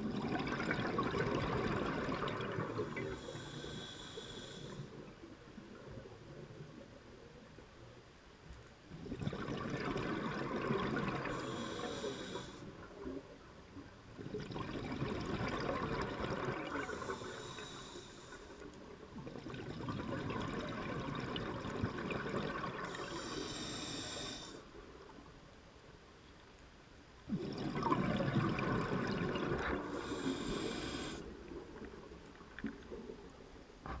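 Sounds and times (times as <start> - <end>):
diver breathing through regulator: 3.0 - 5.0, 11.2 - 12.8, 16.8 - 18.7, 22.9 - 24.7, 29.8 - 31.3.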